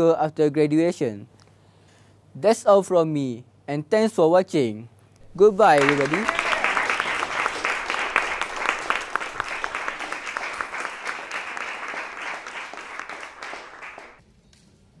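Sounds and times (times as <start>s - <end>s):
crowd applauding: 5.2s - 14.2s.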